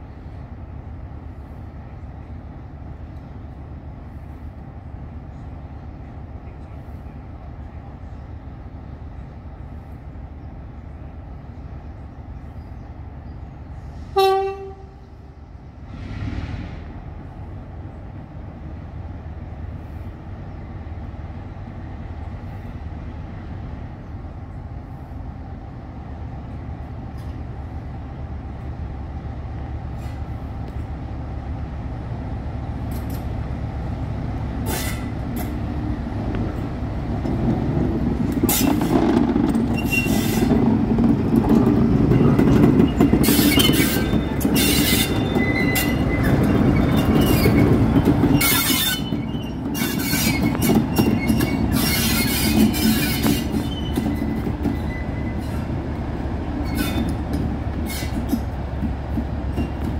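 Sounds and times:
diesel locomotive engine: 0.0 - 59.9
wheels squealing on rails: 29.9 - 30.9, 32.8 - 59.9.

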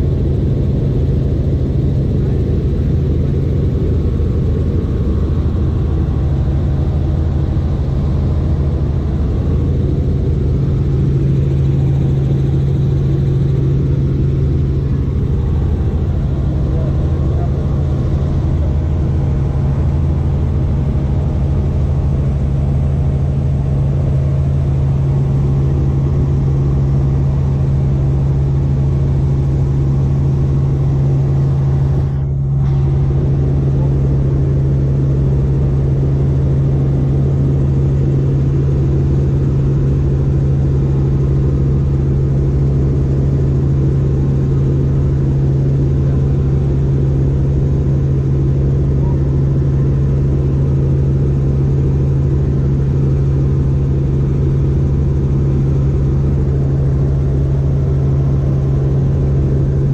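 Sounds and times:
helicopter engine and rotor drone: 0.0 - 59.9.

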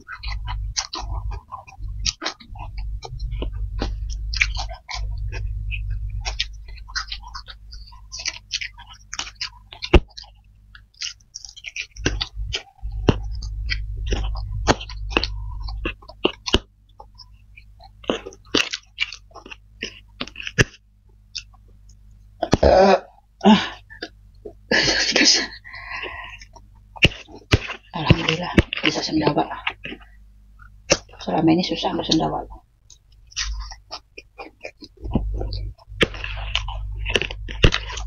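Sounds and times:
chewing and mouth smacks: 0.0 - 22.7, 25.7 - 31.2, 32.5 - 38.0
person burping: 22.4 - 24.0.

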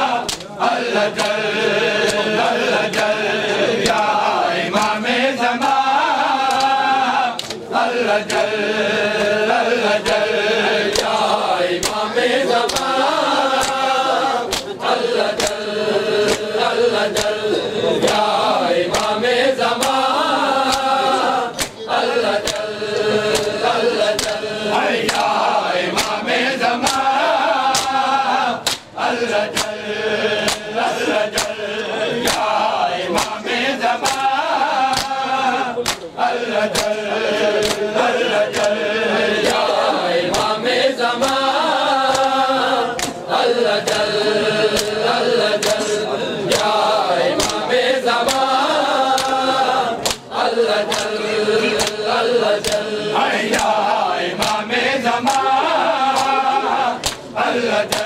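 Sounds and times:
men chanting a lament: 0.0 - 58.0
hands slapping chests: 0.2 - 3.2, 3.8 - 5.0, 6.4 - 8.5, 10.0 - 36.1, 36.7 - 54.7, 55.3 - 58.0.

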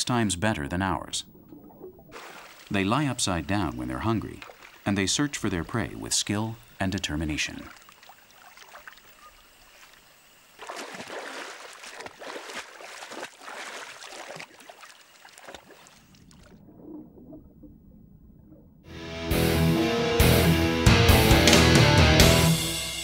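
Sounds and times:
animal splashing in water: 1.6 - 4.9, 7.5 - 16.6
loud music: 18.9 - 23.0.

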